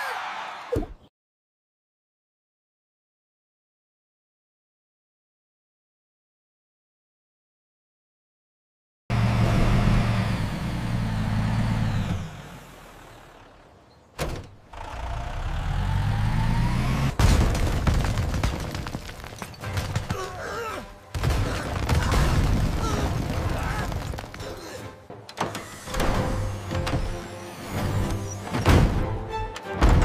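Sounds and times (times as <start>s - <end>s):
heavy truck engine running: 9.1s - 17.2s
brick wall collapsing crash: 17.2s - 20.2s, 21.1s - 24.4s
bricks tumbling and rumbling: 17.2s - 24.6s.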